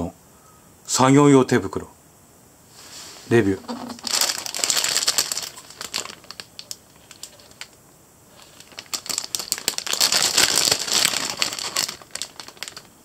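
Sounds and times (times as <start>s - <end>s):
plastic bag crinkling: 3.5s - 13.0s.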